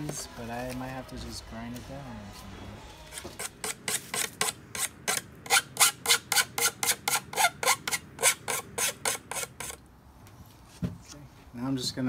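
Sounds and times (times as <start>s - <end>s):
hand file rasping on metal: 3.0s - 9.8s.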